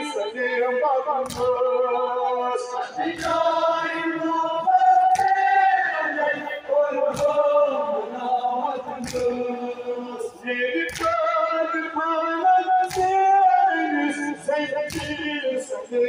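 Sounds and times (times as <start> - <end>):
men chanting a lament: 0.0 - 16.0.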